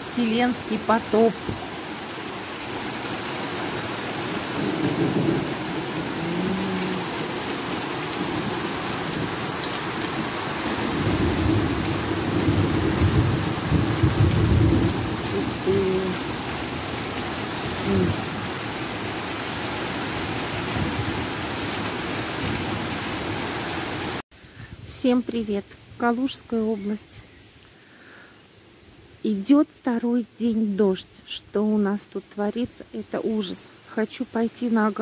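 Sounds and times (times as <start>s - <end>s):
rain on wet paving: 0.0s - 24.2s
low thunder rumble: 4.4s - 7.2s, 10.6s - 16.8s.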